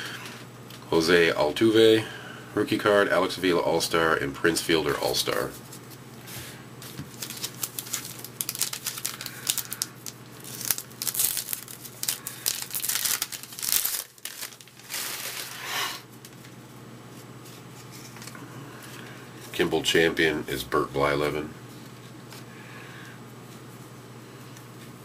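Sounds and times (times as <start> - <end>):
plastic wrapper tearing and crinkling: 6.8 - 15.6.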